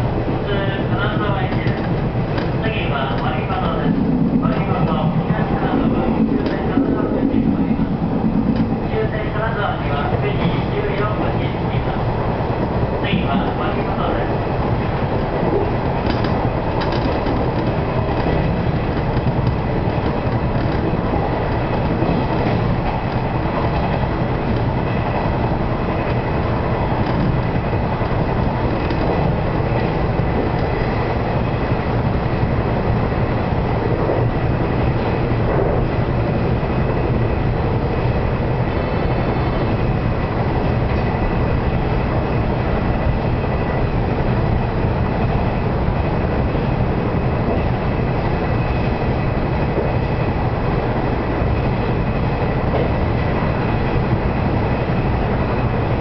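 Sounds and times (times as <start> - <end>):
train motor and wheel hum: 0.0 - 56.0
wheels clicking over rail joints: 1.5 - 3.7, 6.3 - 6.7, 15.5 - 24.8, 26.9 - 31.0.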